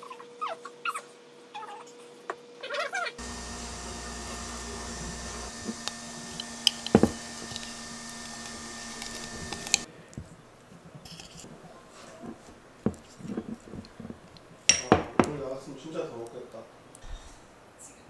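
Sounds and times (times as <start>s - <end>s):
spoon scooping peanut butter: 4.4s - 9.9s.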